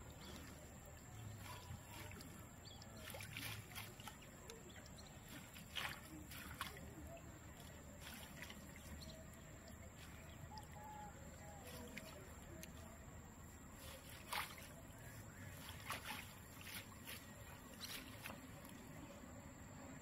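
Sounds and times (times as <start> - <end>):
wet net sloshing and rustling: 0.0 - 12.8, 13.4 - 19.0.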